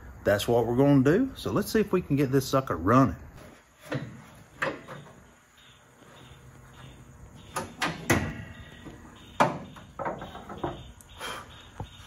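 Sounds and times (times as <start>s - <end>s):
car hood clunking and rattling: 3.8s - 5.2s, 7.4s - 11.0s
sharp metal knocks: 7.4s - 11.0s.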